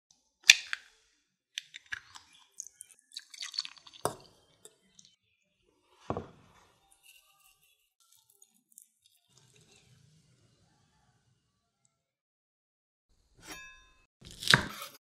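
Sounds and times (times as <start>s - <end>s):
spoon stirring wet rice: 1.6s - 10.3s.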